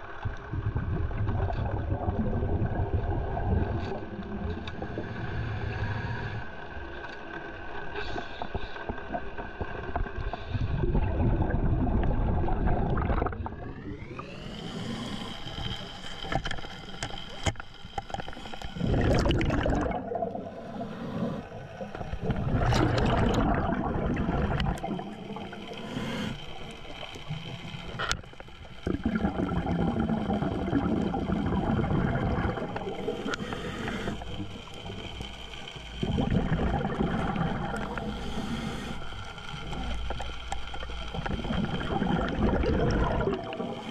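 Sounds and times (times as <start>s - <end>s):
regulator bubbles exhaled underwater: 0.0s - 43.9s
boat motor whine underwater: 9.6s - 43.9s.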